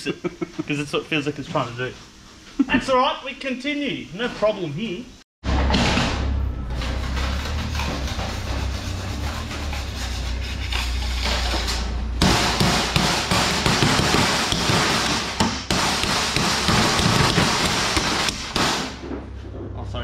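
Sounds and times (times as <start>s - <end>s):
hammer knocking on sheet metal: 12.2s - 19.2s.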